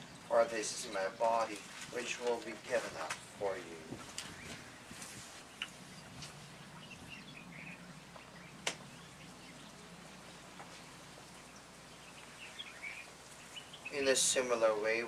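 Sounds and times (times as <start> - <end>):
low steady hum: 0.0 - 15.0
faint bird chirps: 4.2 - 14.5.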